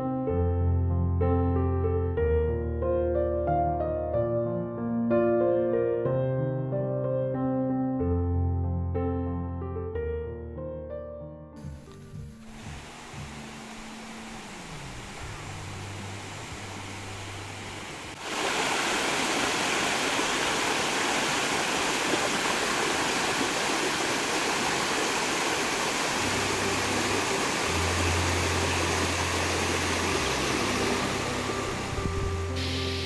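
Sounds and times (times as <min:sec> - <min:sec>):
river water rushing over rocks: 0:12.5 - 0:33.0.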